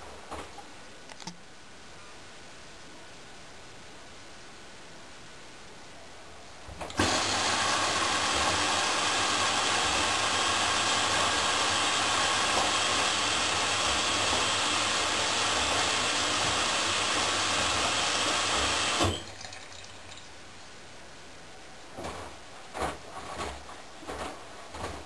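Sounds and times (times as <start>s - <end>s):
water rushing into washing machine: 6.7s - 20.3s.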